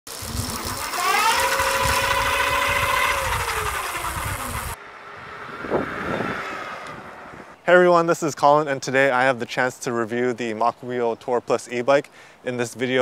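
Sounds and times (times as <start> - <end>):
electric motor whine: 0.1 - 7.4.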